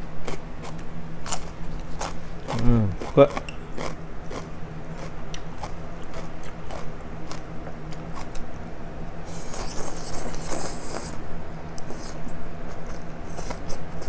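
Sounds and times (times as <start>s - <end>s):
mouth sounds: 2.4s - 3.5s.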